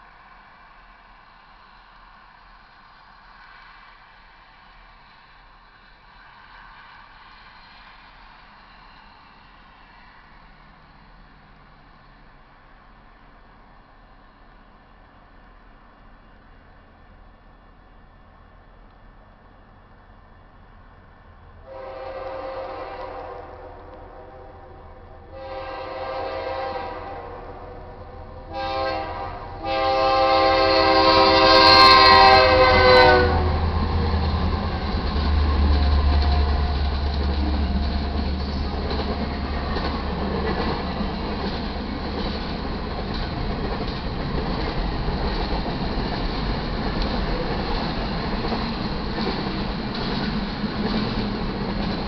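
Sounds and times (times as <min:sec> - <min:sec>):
train rumbling past: 0:00.0 - 0:52.0
locomotive horn blasts: 0:21.6 - 0:27.9, 0:28.5 - 0:33.6.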